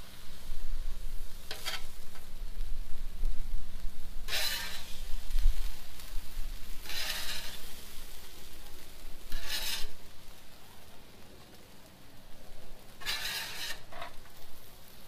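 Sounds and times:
metal spatula scraping griddle: 1.4s - 2.2s, 4.2s - 8.4s, 9.2s - 10.1s, 12.9s - 14.4s.

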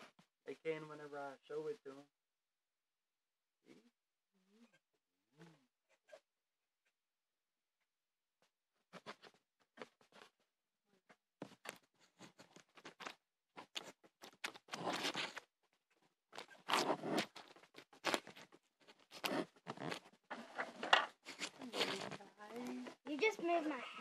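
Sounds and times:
fingers scraping phone: 11.5s - 15.5s, 16.4s - 23.5s.

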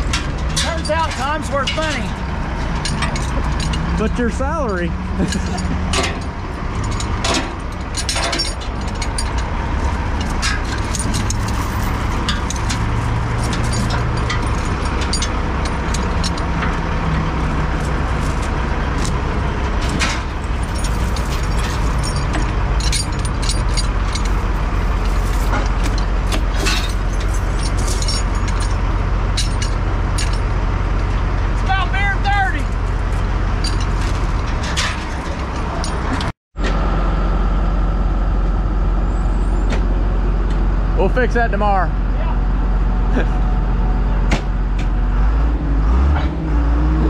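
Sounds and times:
sharp knocks and clanks: 0.0s - 31.4s, 32.6s - 36.8s, 44.2s - 45.0s
heavy truck engine running: 0.0s - 47.0s.

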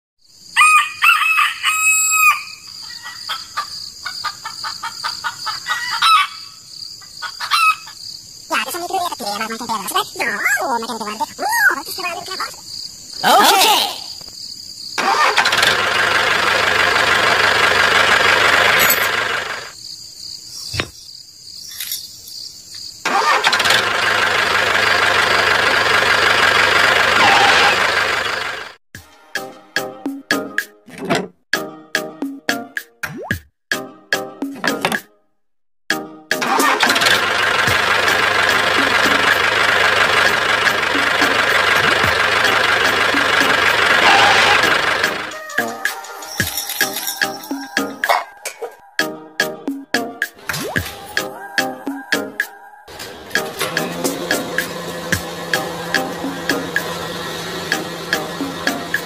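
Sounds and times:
rooster crowing: 0.5s - 6.6s, 7.2s - 8.0s, 44.0s - 49.0s, 50.9s - 53.4s
tractor engine running: 15.0s - 19.8s, 23.1s - 28.8s, 36.4s - 48.1s, 52.9s - 59.0s
high-pitched hum: 50.8s - 59.0s.

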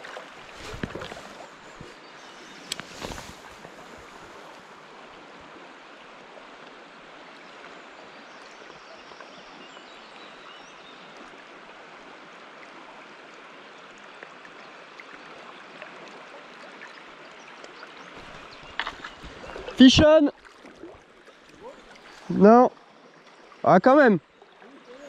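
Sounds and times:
river current rushing: 0.0s - 7.2s, 18.2s - 25.0s.

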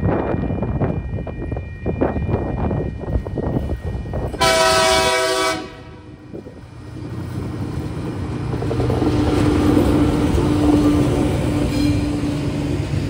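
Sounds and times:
locomotive engines rumbling: 0.0s - 13.0s
locomotive horn blast: 4.4s - 6.2s.

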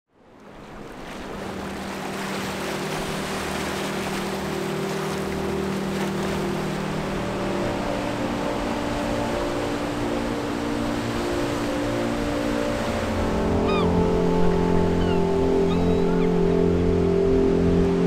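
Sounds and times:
waves washing over rocks: 0.4s - 7.7s
low drone of held tones: 2.6s - 18.0s.

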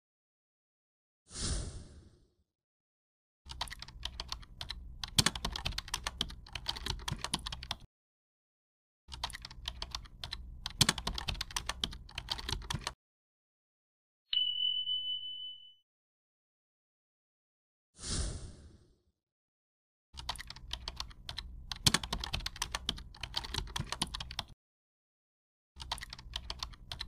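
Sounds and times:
keyboard typing clicks: 3.5s - 7.9s, 9.1s - 13.0s, 20.2s - 24.6s, 25.8s - 27.0s
bright ding: 14.3s - 15.8s.

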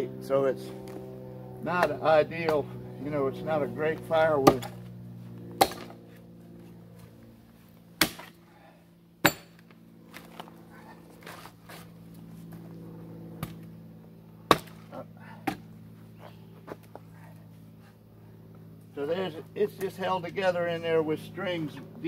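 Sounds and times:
hammer striking steel wedge: 9.2s - 9.6s.

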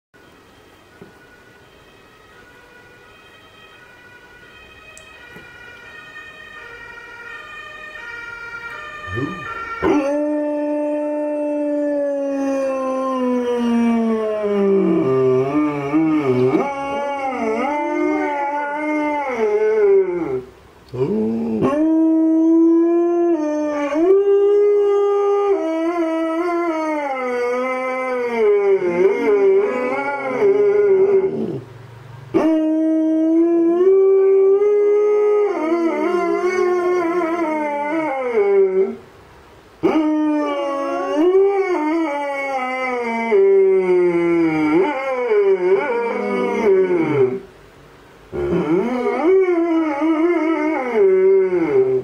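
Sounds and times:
faint siren: 0.2s - 47.5s
dog howling: 9.1s - 31.6s, 32.4s - 39.0s, 39.8s - 47.5s, 48.4s - 52.0s
distant dog howling: 9.1s - 31.7s, 32.3s - 39.1s, 39.8s - 47.5s, 48.3s - 52.0s.

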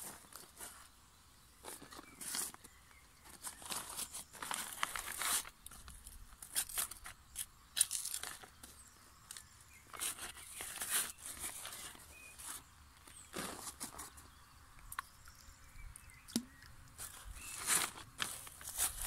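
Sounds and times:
plastic sheet crinkling: 3.3s - 7.2s, 17.0s - 19.0s
trowel scraping soil: 9.9s - 14.3s, 17.0s - 19.0s.

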